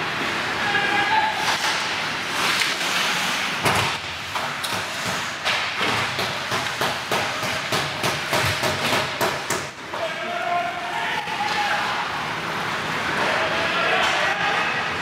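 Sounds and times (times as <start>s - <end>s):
sharp knocks against hockey boards: 3.6s - 9.8s.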